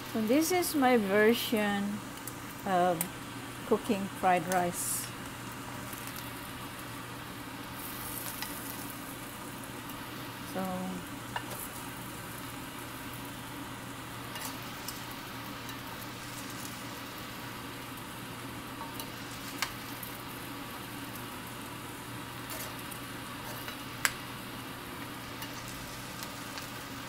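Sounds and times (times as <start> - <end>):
rice sizzling in a pan: 0.0 - 27.0.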